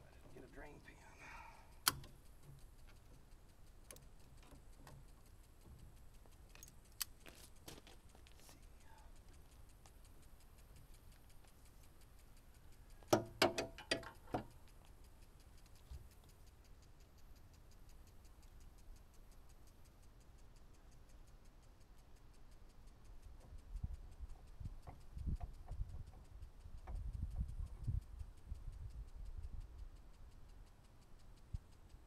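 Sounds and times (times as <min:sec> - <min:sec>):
faint even ticking: 0:00.0 - 0:32.0
tools clicking and tapping: 0:01.6 - 0:28.0.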